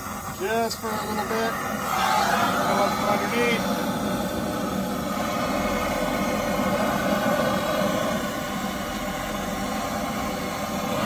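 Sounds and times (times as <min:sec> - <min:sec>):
gas torch flame blowing: 0:00.0 - 0:11.0.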